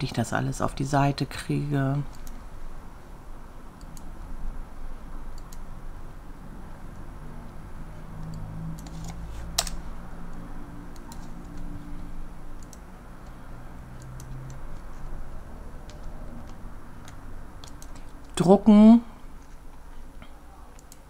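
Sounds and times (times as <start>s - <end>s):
keyboard and mouse clicks: 8.2s - 11.7s, 12.6s - 15.1s, 15.8s - 18.4s, 20.8s - 21.0s.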